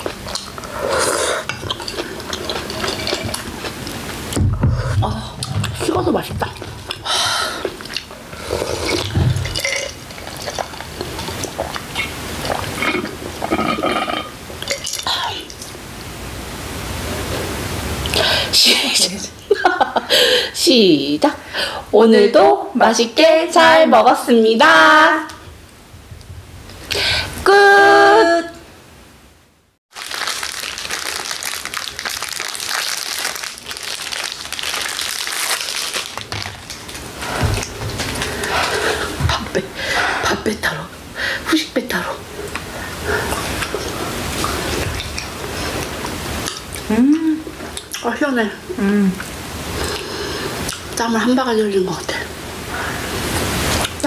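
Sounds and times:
plastic wrapper crinkling: 0:29.9 - 0:38.3.

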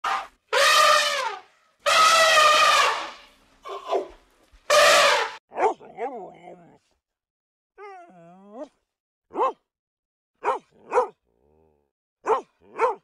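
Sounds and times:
elephant trumpeting: 0:00.0 - 0:04.1, 0:04.7 - 0:05.4.

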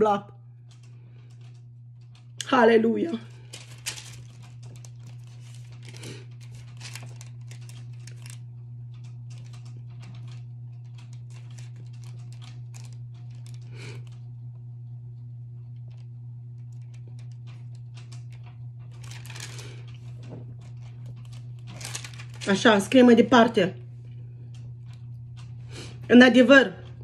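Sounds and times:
steady low hum: 0:00.0 - 0:27.0
thin pages rustling and turning: 0:03.4 - 0:14.3, 0:15.8 - 0:22.9.

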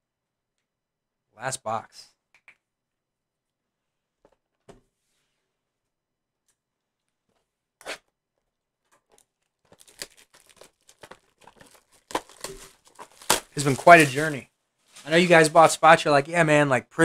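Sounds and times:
plastic wrap tearing and crinkling: 0:09.1 - 0:15.8
sharp crack of cardboard box: 0:09.8 - 0:14.3.

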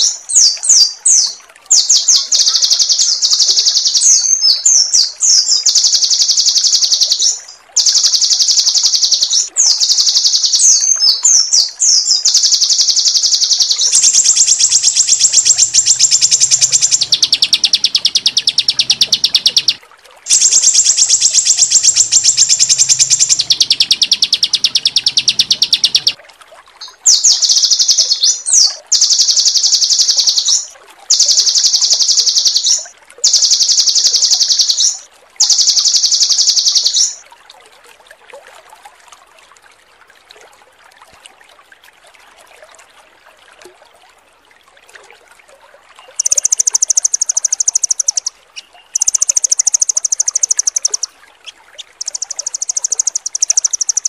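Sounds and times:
songbird rattling trill: 0:01.1 - 0:26.2, 0:27.1 - 0:37.2, 0:46.0 - 0:54.0.

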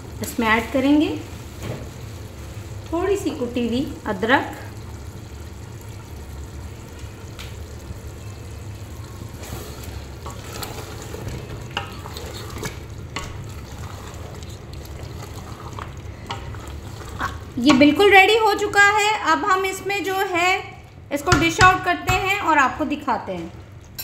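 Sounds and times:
gravy sizzling: 0:00.0 - 0:24.0
wooden spoon scraping metal pot: 0:09.4 - 0:17.9.

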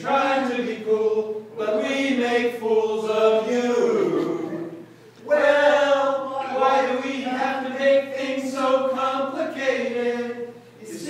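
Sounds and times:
group singing together: 0:00.0 - 0:11.0.

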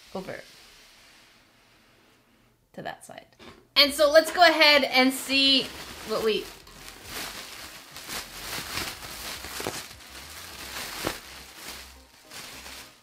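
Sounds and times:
plastic wrapping crinkling: 0:03.9 - 0:13.0.

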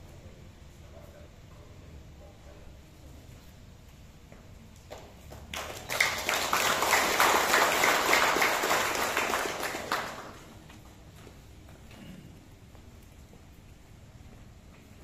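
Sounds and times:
crowd applauding: 0:05.3 - 0:10.6.

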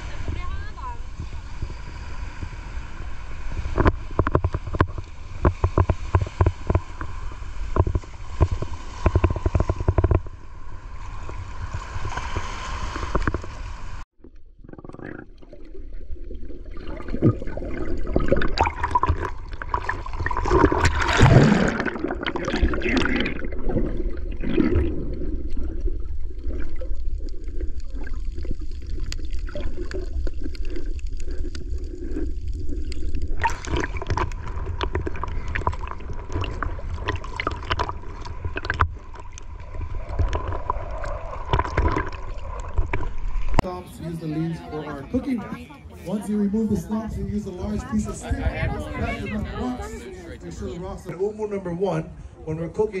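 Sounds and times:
surf washing in: 0:00.0 - 0:14.0, 0:33.4 - 0:51.1
water sloshing underwater: 0:00.0 - 0:46.0
sharp crackles: 0:25.4 - 0:43.6
wind buffeting microphone: 0:46.5 - 0:51.2.

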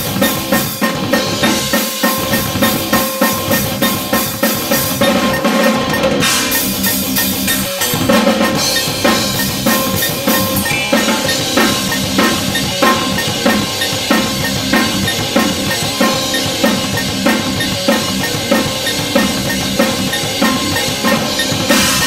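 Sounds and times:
drum kit played hard: 0:00.0 - 0:22.0
cymbals ringing: 0:01.5 - 0:17.1.

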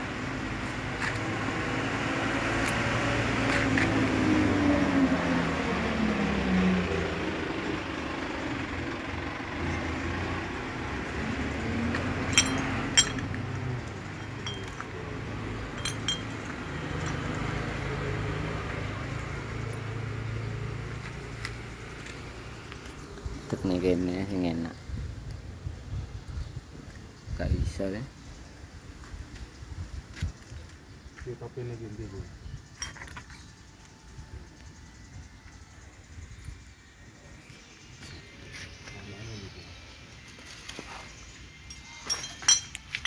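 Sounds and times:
vehicle engine passing: 0:00.0 - 0:24.6
metal brake parts clinking: 0:12.2 - 0:14.9, 0:15.6 - 0:17.4, 0:32.8 - 0:33.5, 0:41.6 - 0:43.0.

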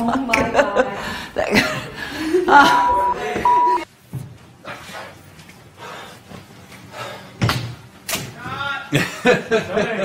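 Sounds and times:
censor bleeps: 0:02.6 - 0:03.8.

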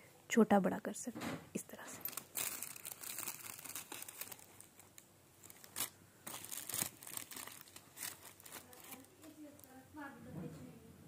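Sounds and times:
plastic bag crinkling: 0:02.0 - 0:09.7.

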